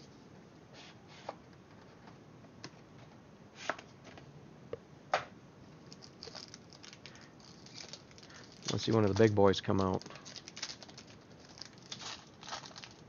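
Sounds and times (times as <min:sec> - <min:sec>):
packaging rustling: 0:05.8 - 0:13.0.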